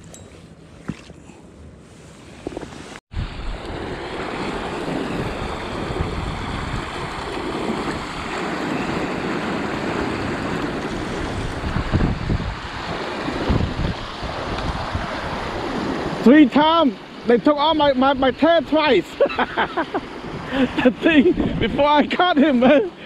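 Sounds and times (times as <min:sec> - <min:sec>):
wind buffeting microphone: 0:02.2 - 0:16.2, 0:20.1 - 0:22.1
river water rushing: 0:03.5 - 0:17.4.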